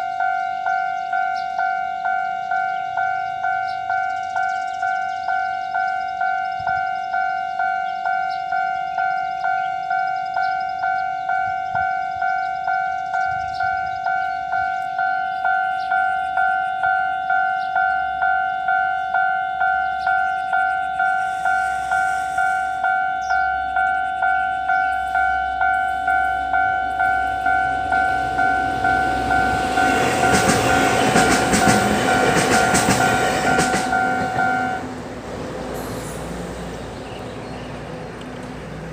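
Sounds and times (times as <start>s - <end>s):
level crossing bell ringing: 22.0s - 34.8s
train wheels clattering: 27.0s - 36.5s.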